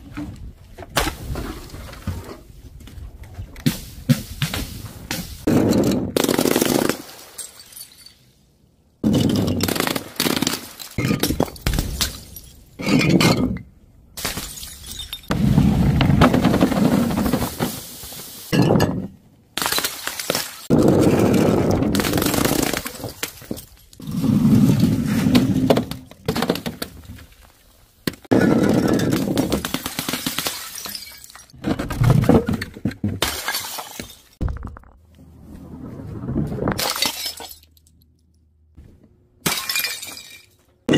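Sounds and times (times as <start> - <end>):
glass bottles shattering: 7.2 - 8.3, 10.6 - 13.6, 14.2 - 15.4, 30.3 - 31.6, 33.2 - 34.4, 36.8 - 37.9, 39.4 - 40.6.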